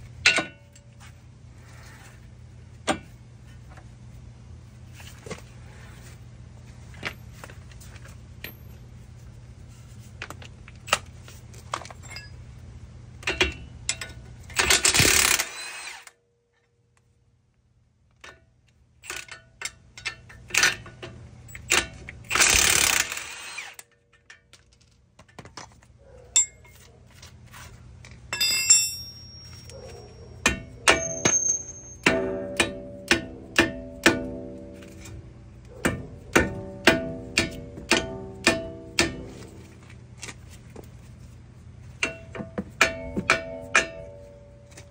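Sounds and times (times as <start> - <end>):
cordless power tool on bolt: 14.6 - 16.2, 22.3 - 23.9
hand tools clinking on metal: 26.2 - 27.0, 28.3 - 39.6.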